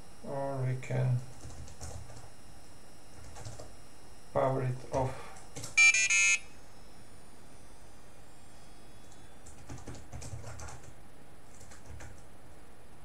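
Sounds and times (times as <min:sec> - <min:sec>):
short electronic beep: 0:05.8 - 0:06.5.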